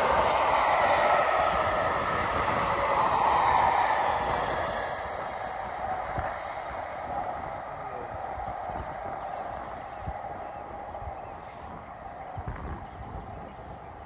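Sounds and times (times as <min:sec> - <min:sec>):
train wheels rolling on rails: 0:00.0 - 0:09.9
wind buffeting microphone: 0:00.0 - 0:14.0.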